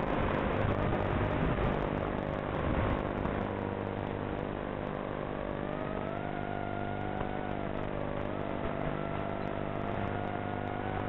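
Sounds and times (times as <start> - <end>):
quadcopter motors buzzing: 5.2 - 11.0.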